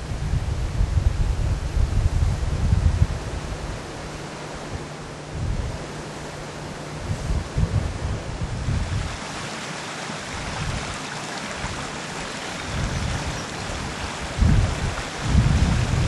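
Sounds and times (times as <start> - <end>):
wind buffeting microphone: 0.0 - 9.5, 10.2 - 16.0
stream rushing over rocks: 8.6 - 16.0.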